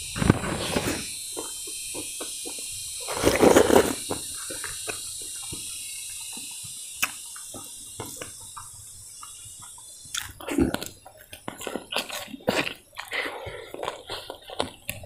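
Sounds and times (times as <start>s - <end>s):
person chewing crispy food: 0.1s - 15.0s
wet mouth clicks and smacks: 7.0s - 13.2s.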